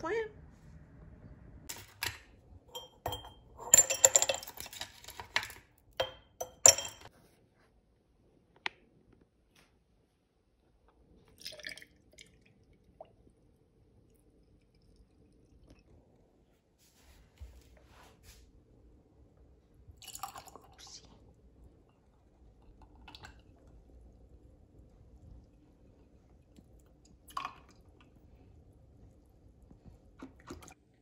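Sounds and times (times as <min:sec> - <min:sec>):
ice cubes clinking in glass jar: 0:01.7 - 0:07.1.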